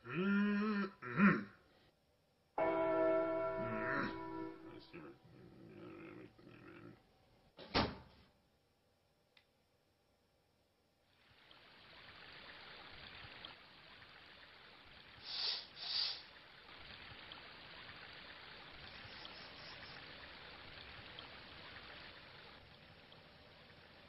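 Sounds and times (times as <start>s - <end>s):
loud breathy bursts: 15.2s - 16.3s.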